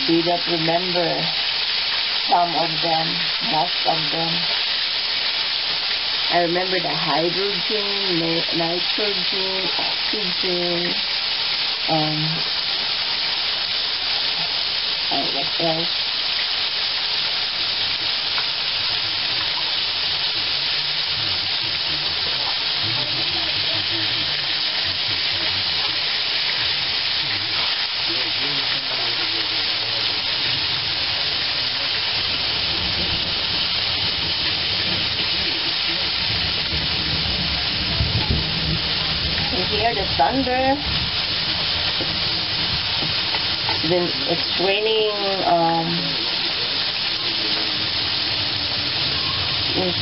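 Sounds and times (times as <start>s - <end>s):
fish sizzling in hot oil: 0.0s - 50.0s
thunder rumble: 32.2s - 44.8s.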